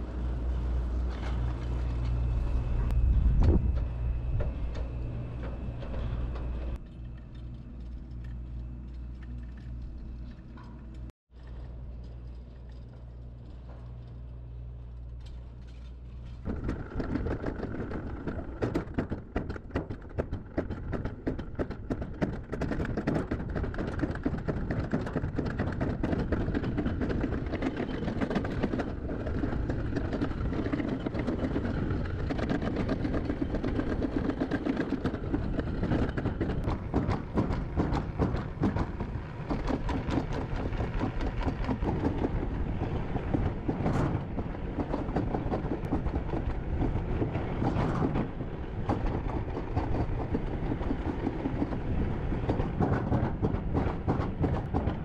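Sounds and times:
low hum: 0:00.0 - 0:19.4
sled wheels rattling on metal track: 0:15.3 - 0:55.0.

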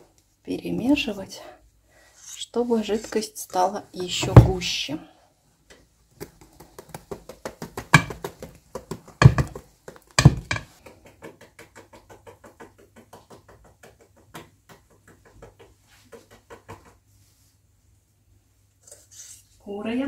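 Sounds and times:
loud knocks: 0:07.9 - 0:08.2, 0:09.2 - 0:09.6, 0:10.2 - 0:10.7.

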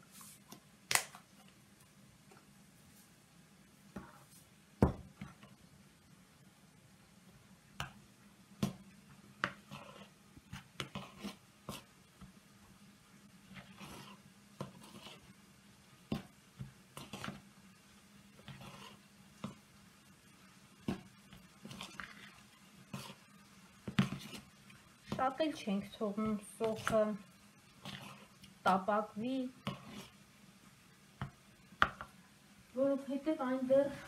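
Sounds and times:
spoon scraping plastic bowl: 0:13.6 - 0:15.3, 0:18.4 - 0:19.0, 0:21.6 - 0:23.3, 0:23.9 - 0:24.5, 0:27.8 - 0:28.4, 0:29.6 - 0:30.2.

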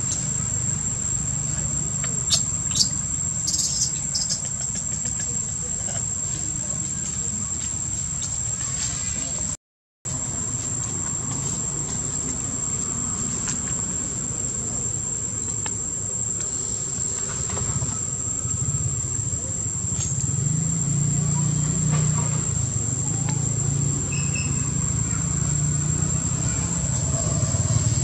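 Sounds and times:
high-pitched insect drone: 0:00.0 - 0:09.5, 0:10.6 - 0:28.0
passing motor vehicle hum: 0:16.4 - 0:28.0.

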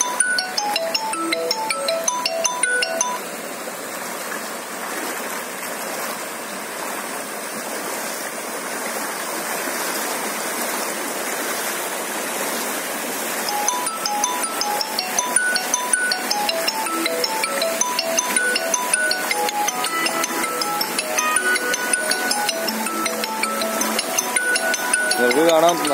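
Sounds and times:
plucked music notes: 0:00.0 - 0:03.2, 0:13.5 - 0:25.9
floodwater rushing: 0:00.0 - 0:25.9.

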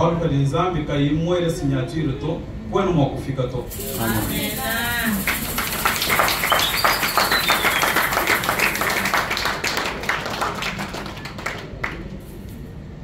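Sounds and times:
audience clapping: 0:05.1 - 0:12.3.

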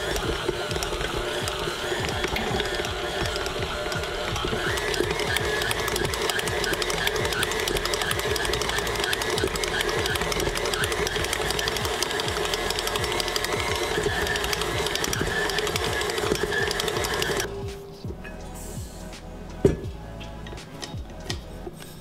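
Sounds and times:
rapid fine ticking: 0:00.0 - 0:17.5
stand mixer motor hum: 0:00.0 - 0:17.5.

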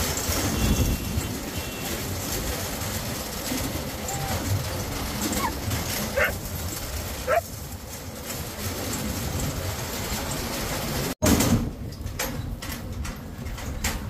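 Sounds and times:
vehicle rumbling over rough ground: 0:00.0 - 0:14.0
dog yelping: 0:04.0 - 0:04.6, 0:05.2 - 0:06.5, 0:07.2 - 0:07.5.

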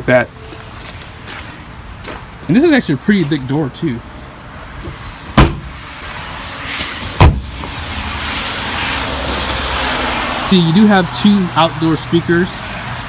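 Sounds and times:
rushing noise: 0:05.0 - 0:11.7
thumps on metal door: 0:05.4 - 0:05.7, 0:07.2 - 0:07.5.

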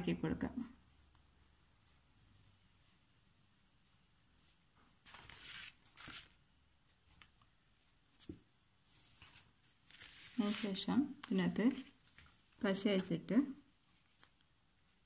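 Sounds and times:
paper rustling: 0:04.5 - 0:13.2, 0:13.8 - 0:14.5.

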